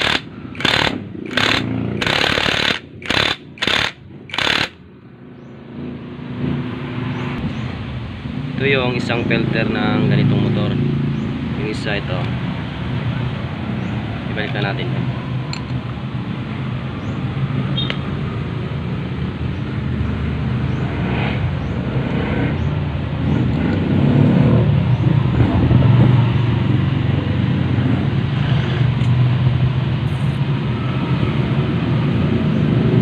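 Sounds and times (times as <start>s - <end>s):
vehicle engine humming: 0.0s - 33.0s.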